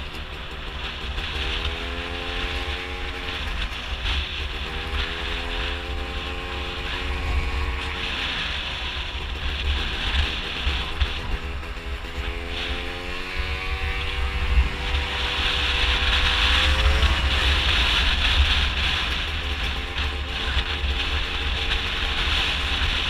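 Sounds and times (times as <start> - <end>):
scooter engine revving: 0.0 - 23.0
wind buffeting microphone: 0.0 - 23.0.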